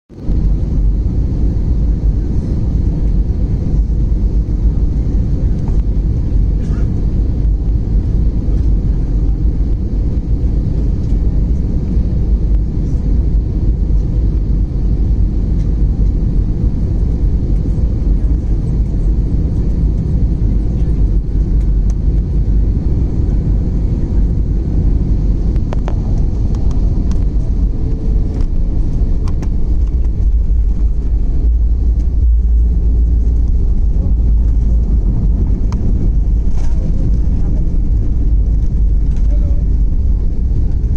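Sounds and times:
jet engines rumbling: 0.1 - 40.9
rushing air: 21.2 - 40.9.

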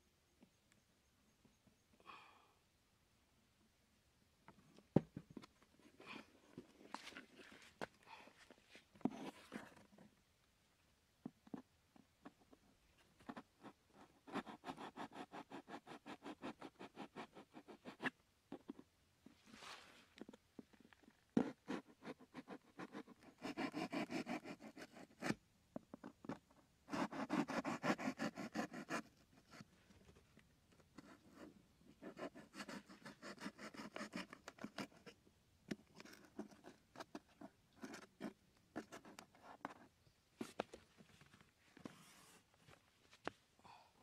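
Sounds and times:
knife sawing through cardboard: 21.7 - 25.2, 26.9 - 29.0.

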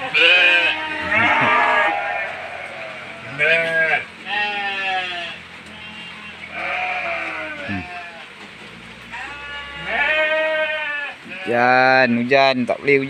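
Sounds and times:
goats bleating loudly: 0.0 - 8.3, 9.1 - 11.7.

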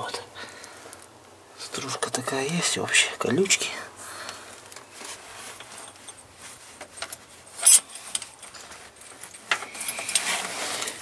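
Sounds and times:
metal clinks and scrapes: 5.0 - 11.0.

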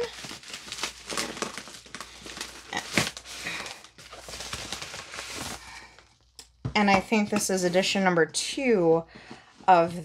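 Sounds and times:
plastic mailer crinkling: 0.0 - 6.4.

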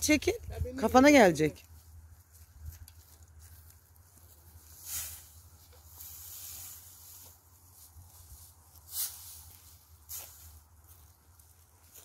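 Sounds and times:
dry hay rustling and crackling: 0.1 - 12.0
hay swishes: 4.0 - 12.0.

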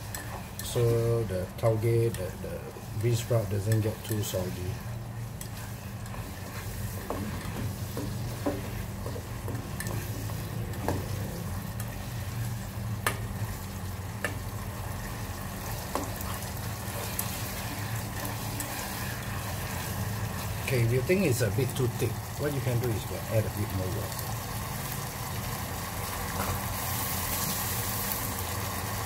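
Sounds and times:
food sizzling in a pot: 0.0 - 29.0
spatula scraping and tapping pot: 5.4 - 11.2.

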